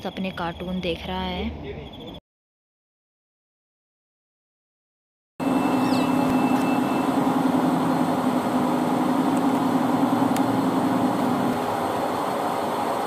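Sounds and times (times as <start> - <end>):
airliner cabin drone: 5.4 - 13.0.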